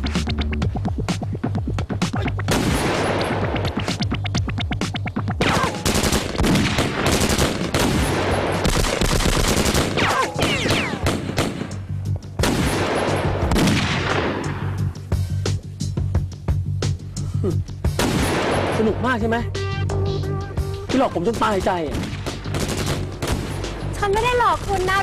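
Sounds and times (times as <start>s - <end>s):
automatic gunfire: 5.4s - 11.7s, 21.3s - 23.6s.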